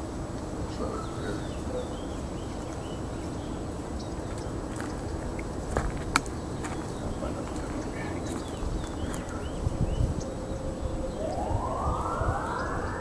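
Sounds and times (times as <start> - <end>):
wind on microphone: 0.0 - 13.0
faint bird chirps: 6.6 - 13.0.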